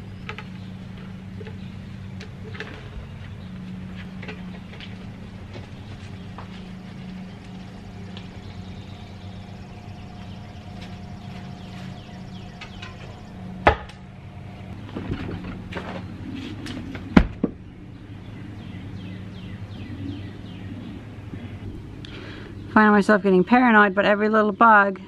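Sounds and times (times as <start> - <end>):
steady low hum: 0.0 - 25.0
heavy wooden log knocks: 13.6 - 14.0.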